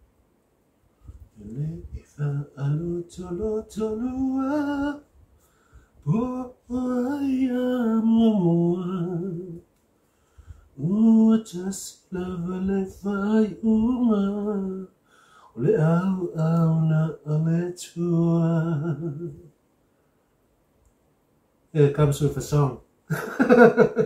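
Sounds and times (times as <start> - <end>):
man singing unaccompanied: 1.3 - 5.1, 6.0 - 9.7, 10.8 - 19.6.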